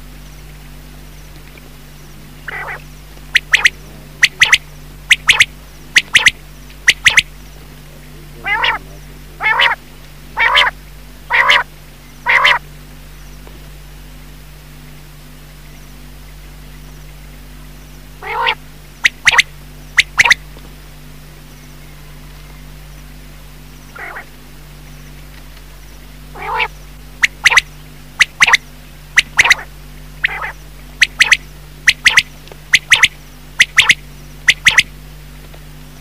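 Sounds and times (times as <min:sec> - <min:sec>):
quail calling: 0:02.4 - 0:07.3, 0:08.4 - 0:09.8, 0:10.4 - 0:12.6, 0:18.2 - 0:20.4, 0:23.9 - 0:24.3, 0:26.3 - 0:28.6, 0:29.2 - 0:34.9.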